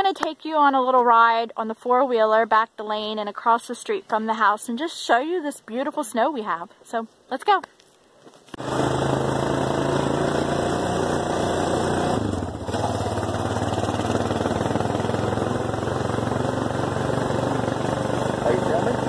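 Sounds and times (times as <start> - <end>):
quad bike engine running: 8.5 - 19.0.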